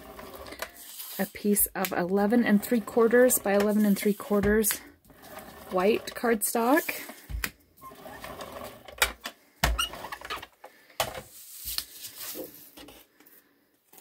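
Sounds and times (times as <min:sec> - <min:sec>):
cardstock rustling and sliding: 0:00.5 - 0:01.6.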